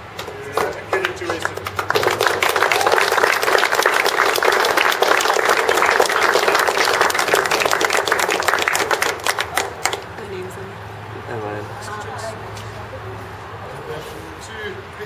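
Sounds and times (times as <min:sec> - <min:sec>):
crowd clapping: 0:00.1 - 0:10.1.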